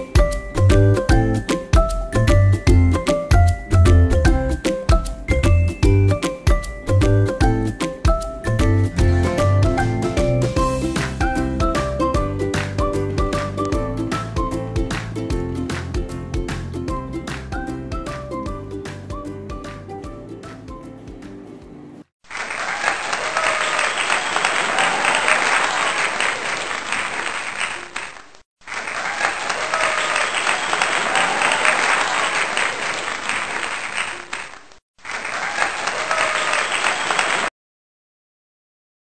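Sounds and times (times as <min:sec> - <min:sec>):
background music: 0:00.0 - 0:22.0
crowd applause and cheering: 0:22.2 - 0:37.5.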